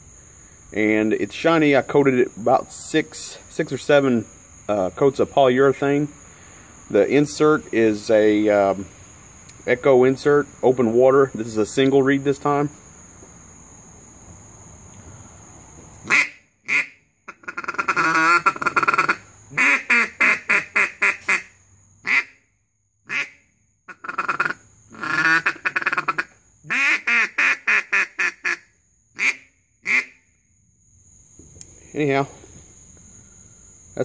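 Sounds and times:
duck call quacks: 0:16.0 - 0:22.4, 0:23.1 - 0:28.6, 0:29.2 - 0:30.2.

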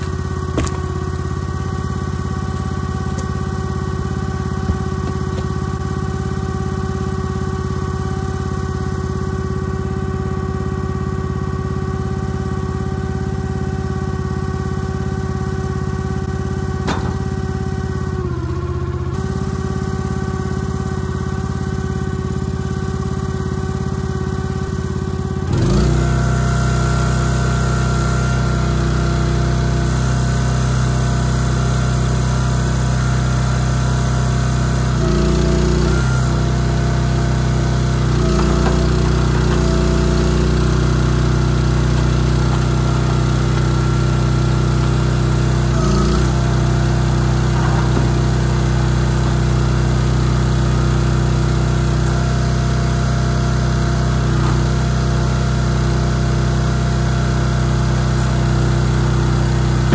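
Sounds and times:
log splitter engine running: 0:00.0 - 0:59.9.

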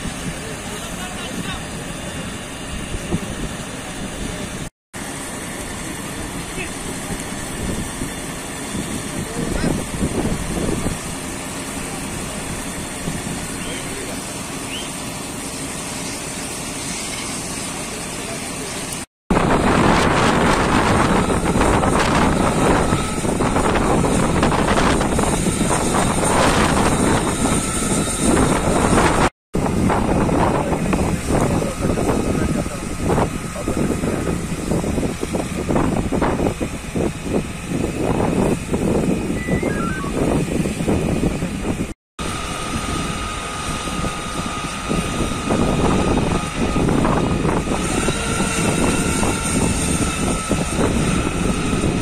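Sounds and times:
fire engine noise: 0:00.0 - 0:52.0
wind buffeting microphone: 0:06.6 - 0:13.8, 0:19.3 - 0:52.0.

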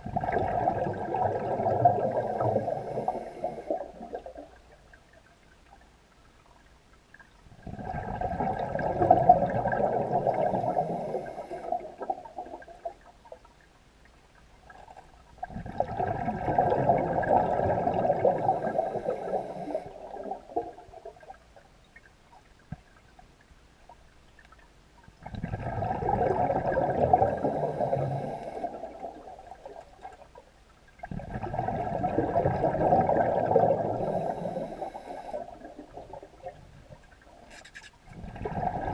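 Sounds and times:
underwater air bubbling from regulator: 0:00.0 - 0:04.6, 0:07.6 - 0:13.0, 0:14.7 - 0:21.4, 0:25.2 - 0:30.2, 0:31.0 - 0:37.3, 0:38.1 - 0:38.9.

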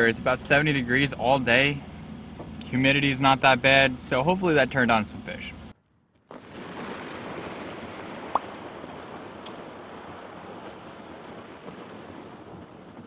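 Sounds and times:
water washing along kayak hull: 0:06.1 - 0:13.0.

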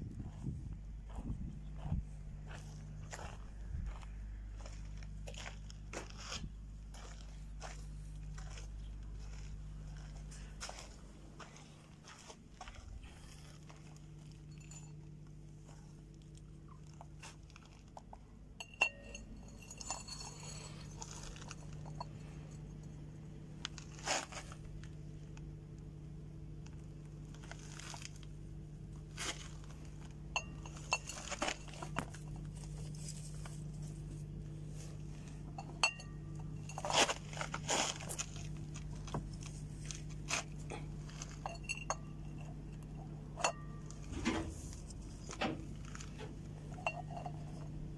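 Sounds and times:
low steady hum: 0:00.0 - 0:47.9
eggshell clinking on plate: 0:18.6 - 0:22.0.

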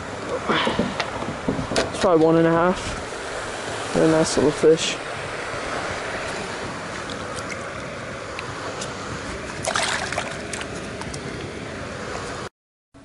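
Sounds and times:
wind on microphone: 0:00.5 - 0:12.5.

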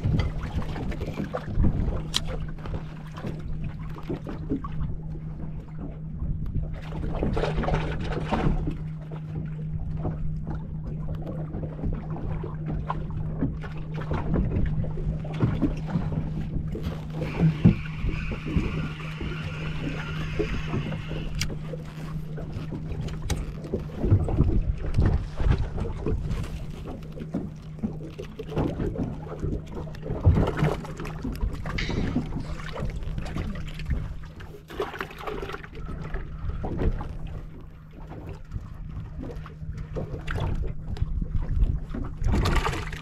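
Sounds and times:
steady low hum: 0:00.0 - 0:43.0
water slapping boat hull: 0:00.0 - 0:43.0
fishing reel whirring: 0:16.6 - 0:24.0, 0:31.6 - 0:33.2.

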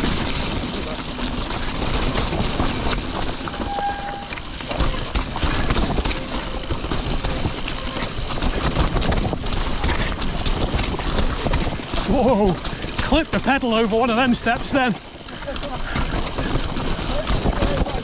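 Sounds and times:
mountain bike rattling: 0:00.0 - 0:18.0
tyres rumbling over rocks: 0:00.0 - 0:18.0
short squeal: 0:03.5 - 0:05.0.

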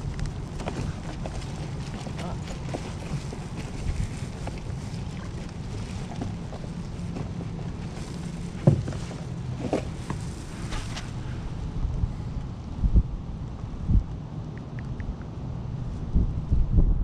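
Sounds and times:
water noise from kayak: 0:00.0 - 0:11.9
wind on microphone: 0:00.0 - 0:17.0
knocks against hull: 0:08.6 - 0:10.2.

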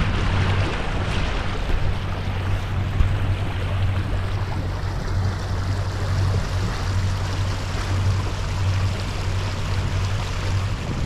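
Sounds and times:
boat engine droning: 0:00.0 - 0:11.0
water rushing along hull: 0:00.0 - 0:11.0.

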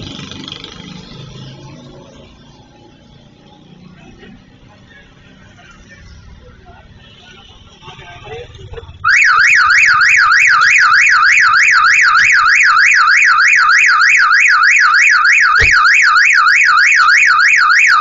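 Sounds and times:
car alarm siren wailing: 0:09.0 - 0:18.0
thump: 0:15.6 - 0:15.9.

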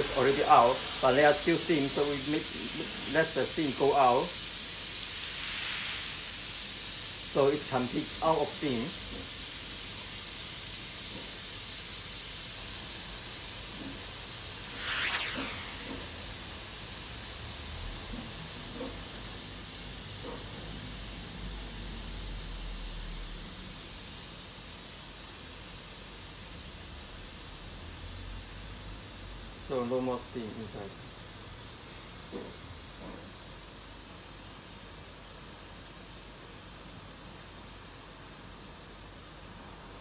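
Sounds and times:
steam cleaner hissing: 0:00.0 - 0:17.5.

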